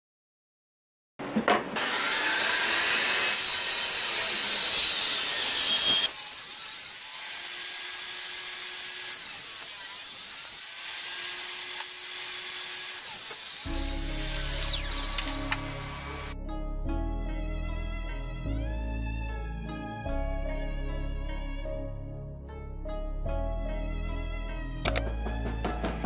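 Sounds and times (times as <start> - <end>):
table saw cutting wood: 1.6 - 16.4
saw running free hum: 1.8 - 16.4.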